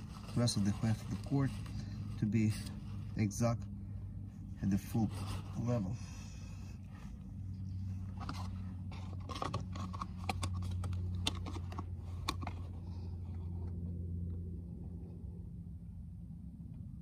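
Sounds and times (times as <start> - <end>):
steady low hum: 0.0 - 17.0
plastic funnel clicking and scraping: 8.2 - 12.8.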